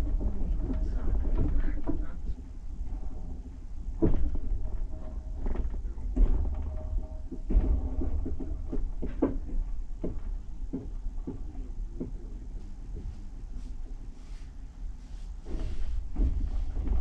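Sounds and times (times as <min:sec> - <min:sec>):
wheels clunking over rail joints: 0:00.0 - 0:13.1, 0:15.5 - 0:17.0
train carriage rumble: 0:00.0 - 0:17.0.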